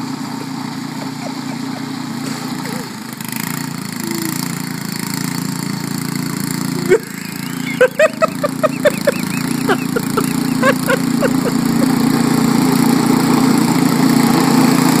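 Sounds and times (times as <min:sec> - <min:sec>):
snowblower engine running: 0:00.0 - 0:15.0
high-pitched chirps: 0:06.9 - 0:10.6.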